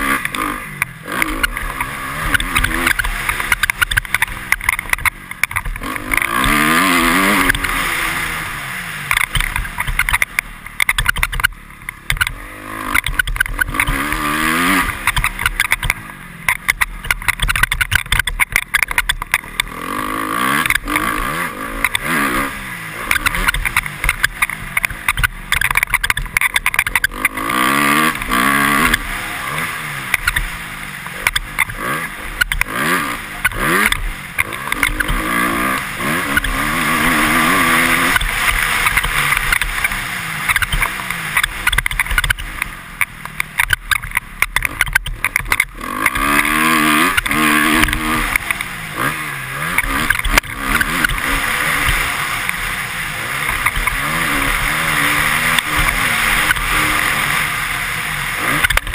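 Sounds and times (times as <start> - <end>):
motorcycle engine revving: 0.0 - 58.9
helmet visor squeaking clicks: 9.1 - 14.0, 15.0 - 19.5, 23.1 - 27.4, 38.1 - 46.5.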